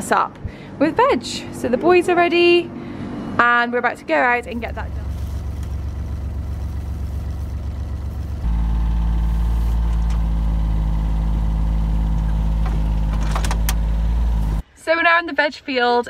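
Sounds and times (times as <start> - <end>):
utility buggy engine running: 4.4 - 14.6.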